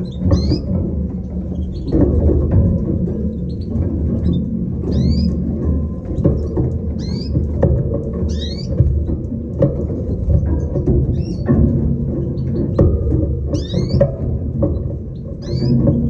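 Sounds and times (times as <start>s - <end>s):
finches chirping: 0.0s - 0.8s, 3.3s - 5.4s, 6.2s - 7.4s, 8.2s - 8.8s, 13.5s - 16.0s.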